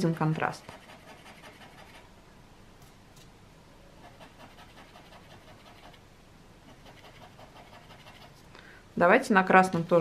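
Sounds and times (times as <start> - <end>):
palette knife scraping pastel: 0.3 - 2.1, 4.0 - 6.0, 6.7 - 8.4.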